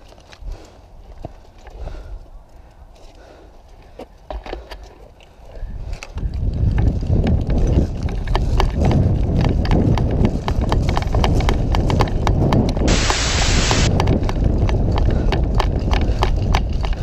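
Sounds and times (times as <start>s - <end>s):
running footsteps on dry ground: 0.0s - 17.0s
loud hiss burst: 12.9s - 13.9s.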